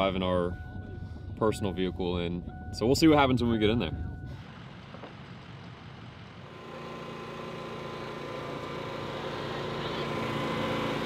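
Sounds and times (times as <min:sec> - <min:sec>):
small generator engine running: 0:04.3 - 0:11.0.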